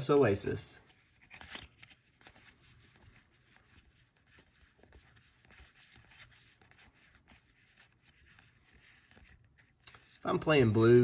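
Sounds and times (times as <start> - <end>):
playing cards sliding together: 0.8 - 10.2.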